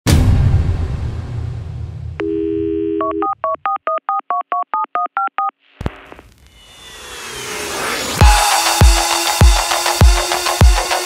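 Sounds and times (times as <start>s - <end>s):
telephone dial tone: 2.2s - 5.5s
touch-tone keypad beeps: 2.9s - 5.5s
rising whoosh: 6.0s - 9.4s.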